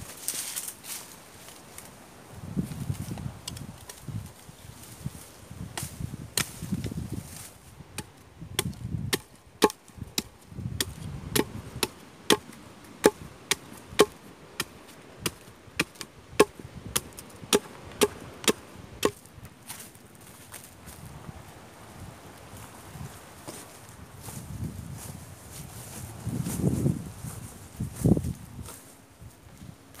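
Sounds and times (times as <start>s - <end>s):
machete chopping wood: 8.0s - 19.2s.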